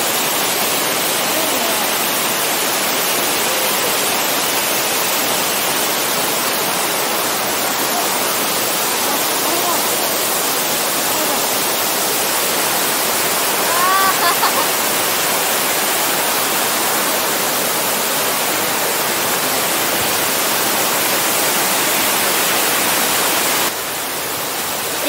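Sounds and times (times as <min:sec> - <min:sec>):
stream rushing over rocks: 0:00.0 - 0:25.0
person calling out: 0:13.6 - 0:14.7.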